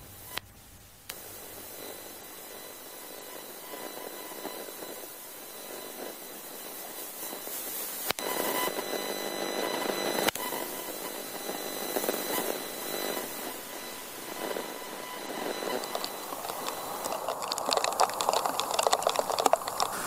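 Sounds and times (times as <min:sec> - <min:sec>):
hiss of audio link: 0:00.0 - 0:20.0
sharp clicks: 0:15.4 - 0:20.0.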